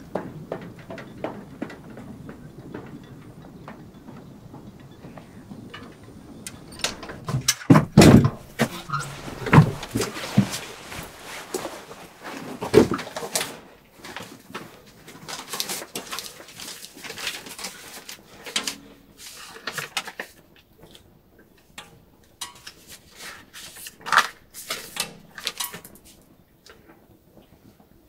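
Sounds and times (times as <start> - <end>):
paper rustling and crinkling: 6.8 - 26.8
sharp paper crackle: 8.3 - 20.4, 22.4 - 26.2.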